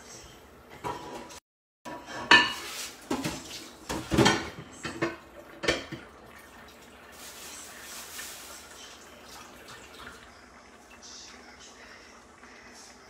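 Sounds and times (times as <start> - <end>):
pots and pans clattering: 0.7 - 6.2.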